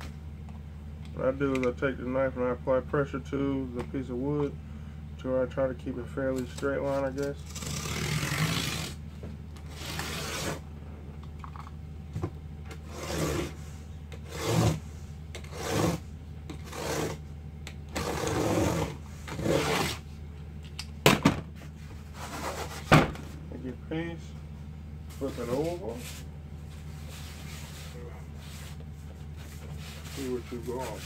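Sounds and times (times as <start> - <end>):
knife scraping through cardboard: 7.5 - 9.0, 9.7 - 10.6, 12.8 - 13.6, 14.2 - 17.2, 17.9 - 20.0, 22.2 - 22.9, 29.4 - 31.0.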